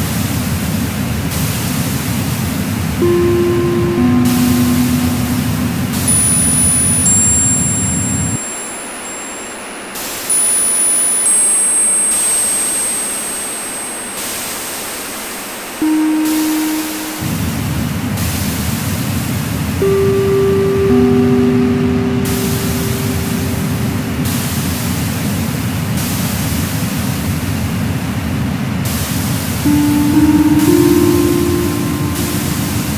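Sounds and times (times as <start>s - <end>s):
steady electronic tones: 3.0s - 8.5s, 15.8s - 18.0s, 19.8s - 24.6s, 29.6s - 32.9s.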